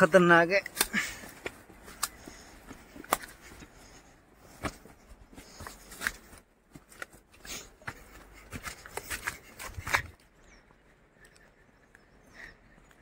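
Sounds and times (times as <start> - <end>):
brush rustling: 0.0 - 10.2
footsteps crunching on dry grass: 0.0 - 10.2.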